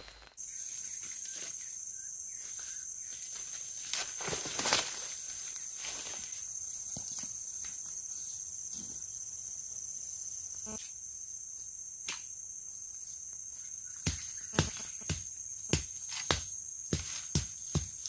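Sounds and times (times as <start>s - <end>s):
insects droning: 0.0s - 18.0s
hand tool chopping ground: 14.0s - 18.0s.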